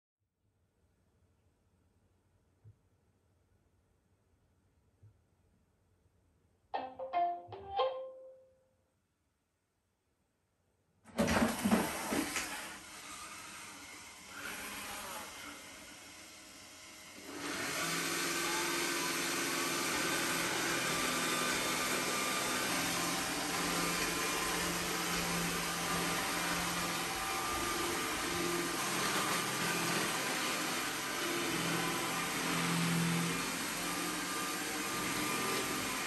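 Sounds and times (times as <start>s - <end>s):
robot vacuum loud burst: 11.2s - 12.8s.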